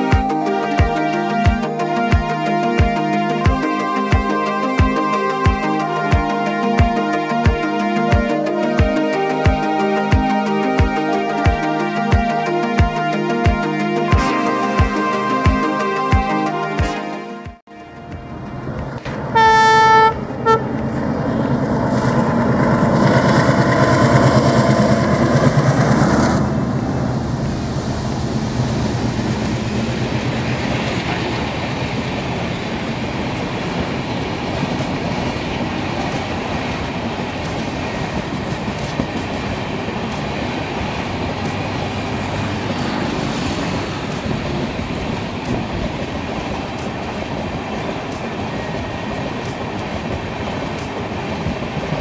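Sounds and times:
locomotive horn: 0:00.0 - 0:20.9
train coaches rolling by: 0:17.7 - 0:52.0
locomotive engine rumbling: 0:17.8 - 0:52.0.

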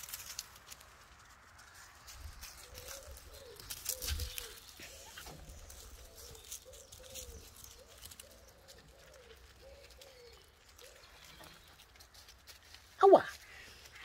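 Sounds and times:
rustling and ticking in leaves: 0:00.0 - 0:14.0
dove cooing: 0:02.4 - 0:11.7.

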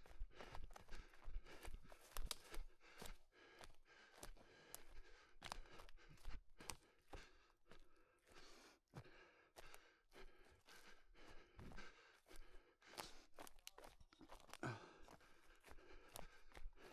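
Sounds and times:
heavy breathing: 0:00.0 - 0:16.9
running footsteps on forest floor: 0:00.0 - 0:16.9
twigs and leaves crackling: 0:00.9 - 0:02.6, 0:12.9 - 0:16.9.

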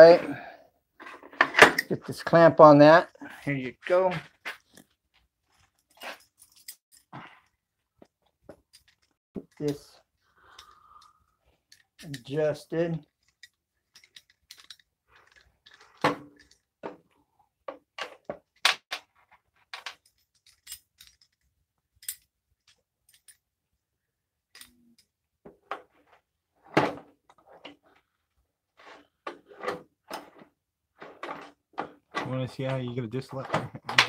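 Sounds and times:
metal clamp rattling and knocking: 0:13.2 - 0:16.6.

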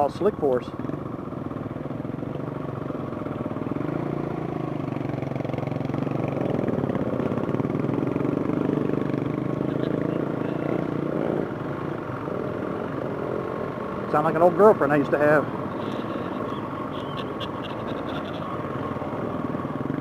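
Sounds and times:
dirt bike engine revving: 0:03.6 - 0:19.1.

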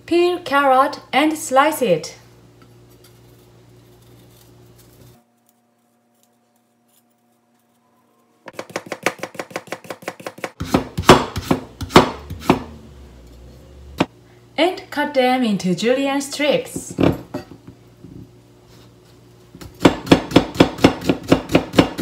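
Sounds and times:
knife chopping on plastic board: 0:08.5 - 0:12.8, 0:19.6 - 0:22.0.

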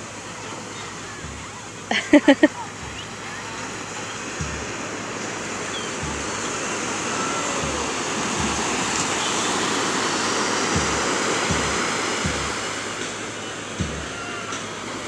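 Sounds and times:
small waves breaking on beach: 0:00.0 - 0:15.0
low thumps on microphone: 0:01.2 - 0:03.6, 0:04.4 - 0:04.9, 0:05.6 - 0:09.3, 0:10.7 - 0:12.8.

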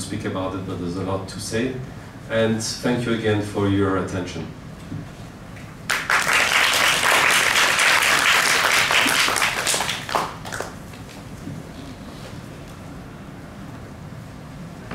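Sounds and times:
audience applauding: 0:05.9 - 0:11.1.

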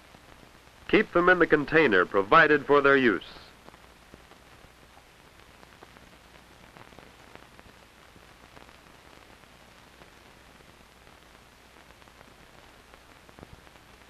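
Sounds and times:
faint crackles: 0:00.0 - 0:14.0
film soundtrack hiss: 0:00.0 - 0:14.0.

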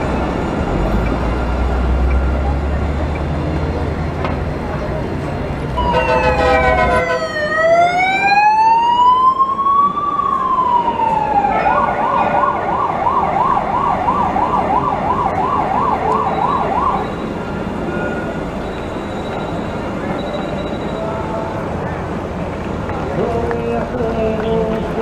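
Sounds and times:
emergency vehicle siren: 0:05.8 - 0:21.2.

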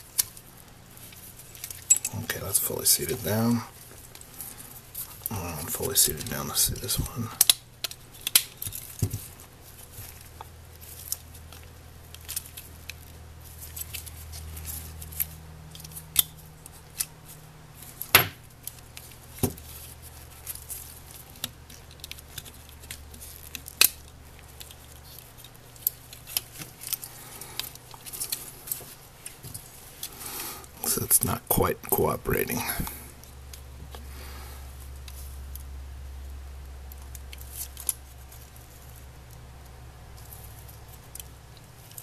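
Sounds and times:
plastic parts clicking and snapping: 0:06.1 - 0:09.3.

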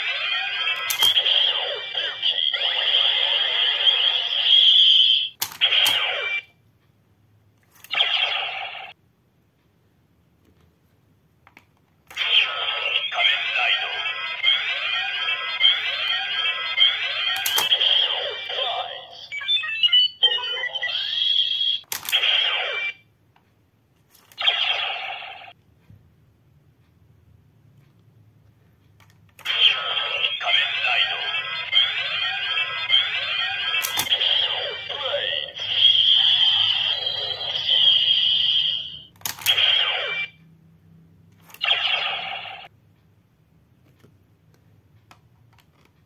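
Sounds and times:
falling electronic tones: 0:12.2 - 0:21.8.

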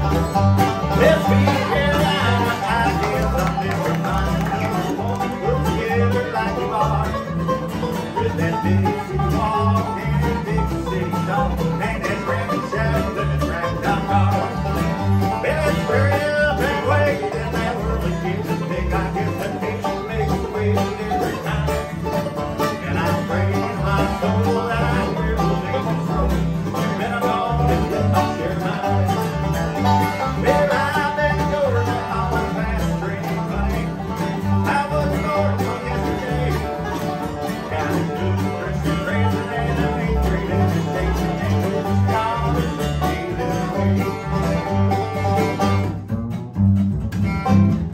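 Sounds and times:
bluegrass band playing: 0:00.0 - 0:47.9
upright bass beat: 0:00.0 - 0:47.9.

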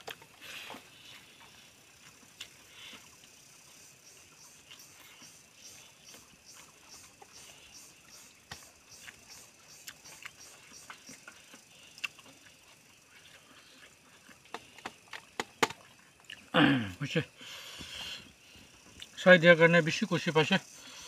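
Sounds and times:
chewing and lip-smacking: 0:00.0 - 0:03.4, 0:08.5 - 0:15.2, 0:15.8 - 0:16.5.

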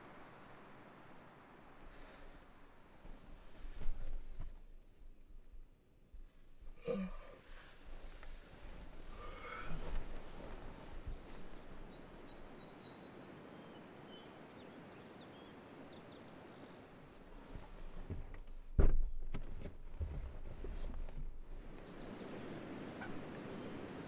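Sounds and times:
faint bird chirps: 0:04.9 - 0:06.2, 0:21.5 - 0:24.0
sleeping bag rustling: 0:07.4 - 0:11.8.

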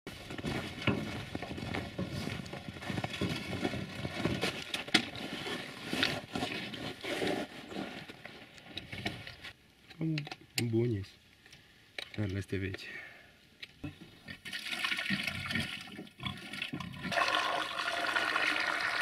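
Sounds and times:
wheelbarrow pushed on snow: 0:00.1 - 0:08.1
footsteps crunching on snow: 0:00.1 - 0:08.4.

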